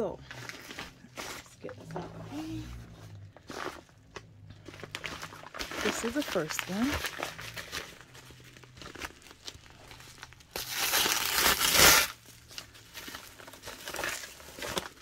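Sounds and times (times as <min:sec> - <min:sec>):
packaging crinkling and rustling: 0:00.1 - 0:15.0.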